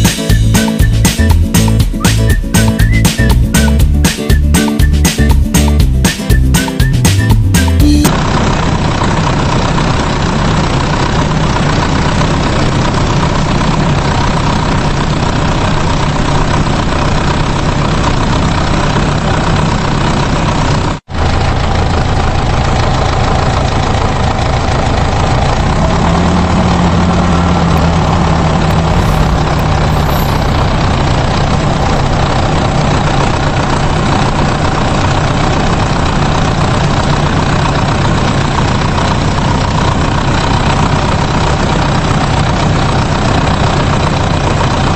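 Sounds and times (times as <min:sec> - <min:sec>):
heavy vehicle engine idling: 0:00.0 - 0:44.9.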